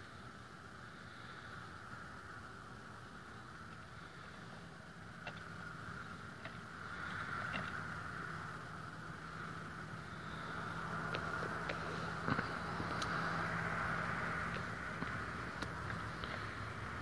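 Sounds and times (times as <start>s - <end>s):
engine-like hum: 0.0s - 17.0s
faint sharp clicks: 11.1s - 13.2s, 14.4s - 16.5s.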